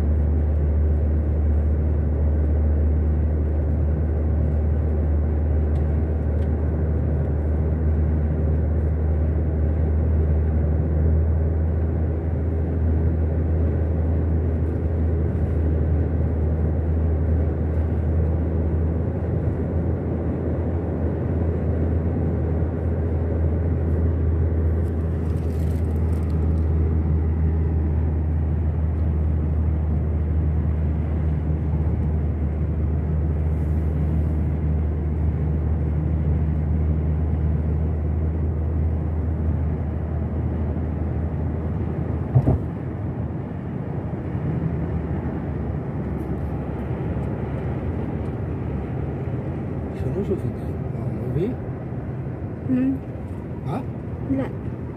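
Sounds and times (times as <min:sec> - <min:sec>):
car engine and road drone: 0:00.0 - 0:54.9.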